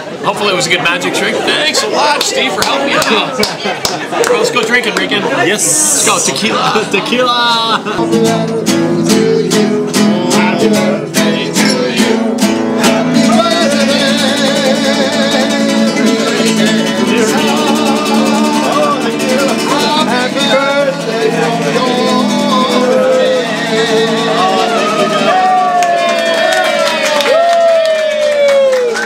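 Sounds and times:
acoustic guitar strumming: 0:04.5 - 0:27.2
person singing with vibrato: 0:07.6 - 0:26.9.

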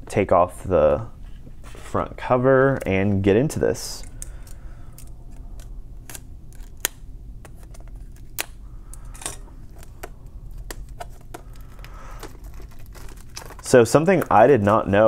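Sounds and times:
low steady hum: 0:00.0 - 0:15.0
plastic wrapping crackling: 0:09.5 - 0:15.0.

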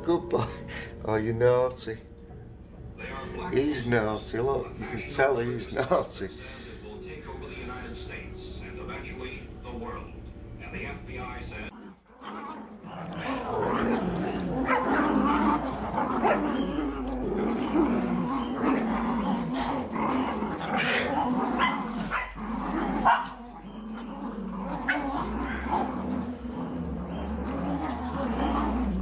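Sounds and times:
puppies growling and yipping: 0:11.7 - 0:29.0
puppy crying: 0:12.1 - 0:29.0.

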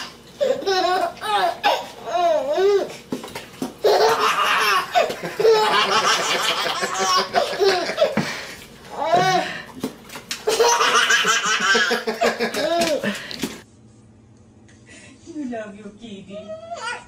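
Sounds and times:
baby laughing: 0:00.0 - 0:03.0, 0:03.8 - 0:08.2, 0:08.9 - 0:09.5, 0:10.4 - 0:13.2.

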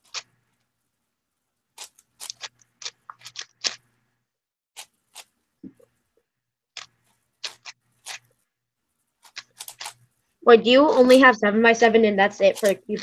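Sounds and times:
puzzle cube layers clicking: 0:01.8 - 0:03.9, 0:06.8 - 0:08.3, 0:09.2 - 0:10.0.

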